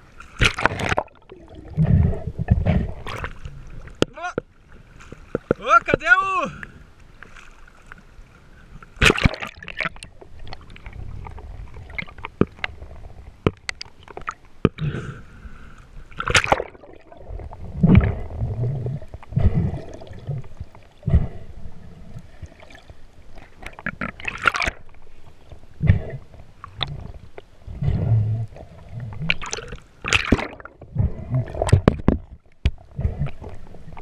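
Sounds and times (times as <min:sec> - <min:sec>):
sea water sloshing and splashing: 0:00.0 - 0:05.8, 0:06.6 - 0:34.0.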